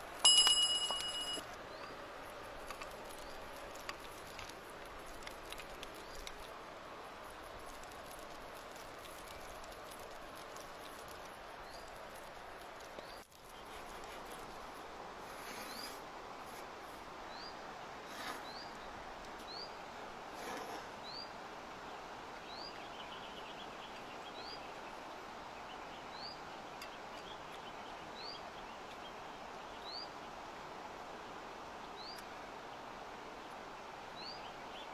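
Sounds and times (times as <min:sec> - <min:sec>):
steady rushing hiss: 0:00.0 - 0:34.9.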